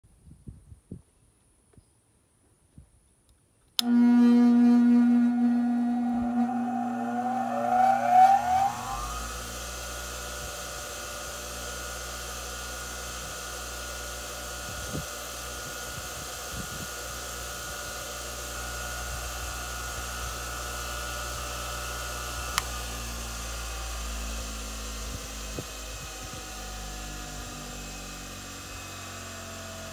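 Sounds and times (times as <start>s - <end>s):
click: 3.3s - 4.0s, 22.5s - 22.7s
bench grinder whining: 3.8s - 14.5s, 17.3s - 29.9s.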